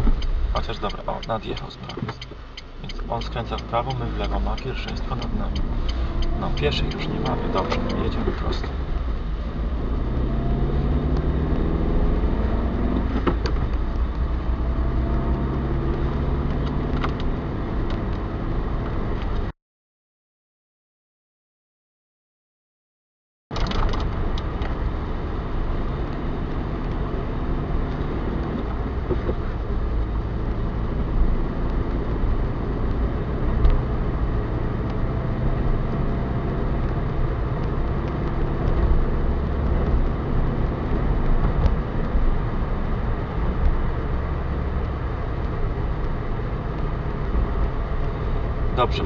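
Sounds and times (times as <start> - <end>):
car engine hum: 0.0 - 19.5, 23.6 - 49.0
road noise inside car: 0.0 - 19.5, 23.5 - 49.0.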